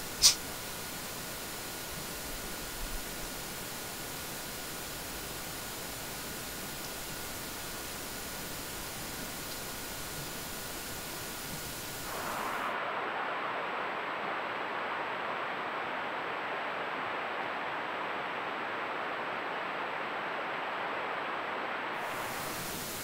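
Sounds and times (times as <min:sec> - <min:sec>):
steady hiss: 0:00.0 - 0:23.0.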